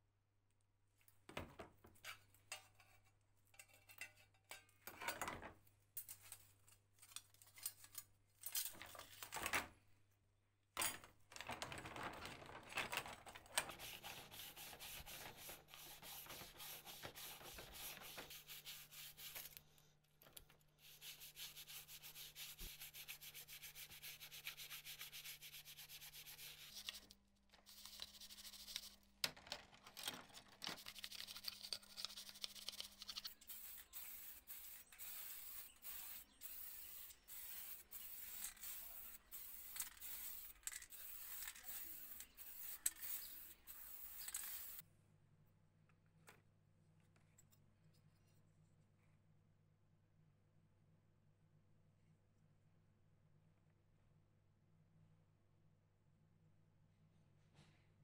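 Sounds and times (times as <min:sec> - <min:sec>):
brush scrubbing metal: 0:13.6 - 0:19.6, 0:20.8 - 0:27.0, 0:30.8 - 0:44.8
metal parts knocking and scraping: 0:39.5 - 0:44.8.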